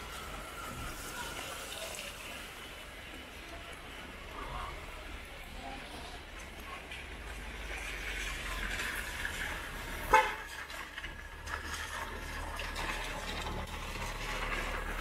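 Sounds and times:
street noise hiss: 0:00.0 - 0:15.0
vehicle horn toot: 0:10.1 - 0:10.5.

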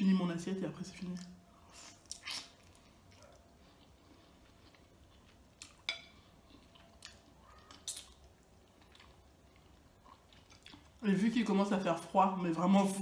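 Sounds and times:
chewing chicken wing: 0:01.7 - 0:11.0
wet mouth smacks: 0:07.1 - 0:08.2.

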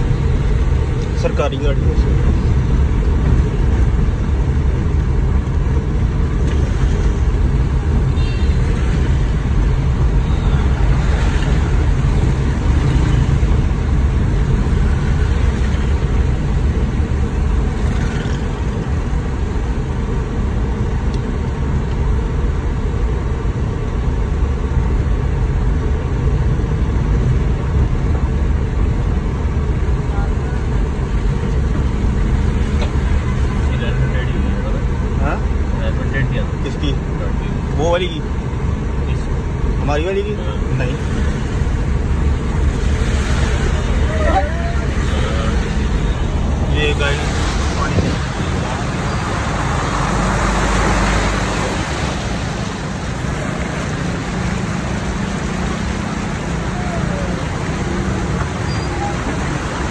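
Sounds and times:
engine and tyres on wet road: 0:00.0 - 0:59.9.

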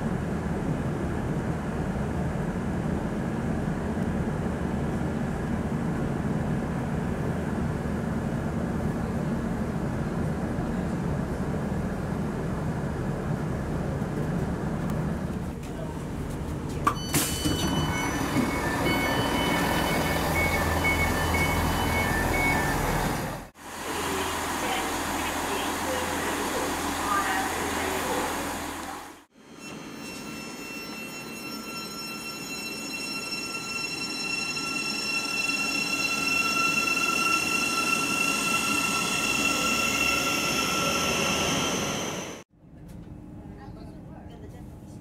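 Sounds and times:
train low rumble: 0:00.0 - 0:29.3
two-tone electronic beeps: 0:16.9 - 0:23.1.

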